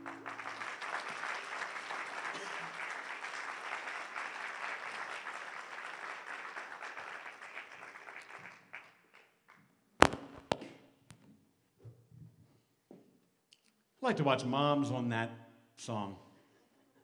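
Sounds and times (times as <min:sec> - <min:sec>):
audience applause: 0:00.0 - 0:09.2.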